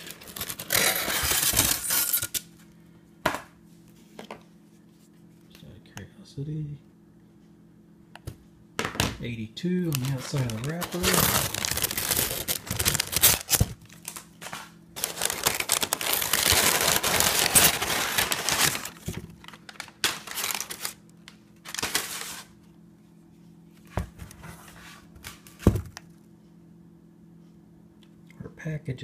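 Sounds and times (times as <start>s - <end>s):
packing paper rustling: 0.0s - 2.2s, 9.8s - 22.6s.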